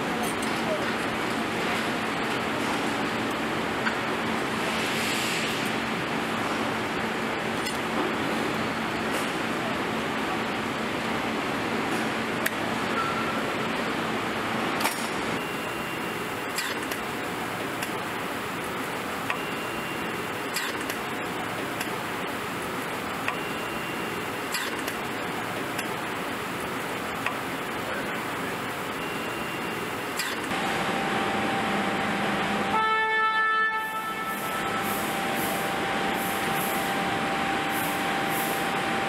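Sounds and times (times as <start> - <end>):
loud buzzing alert tone: 30.5 - 39.0
mechanical hiss: 37.7 - 38.8.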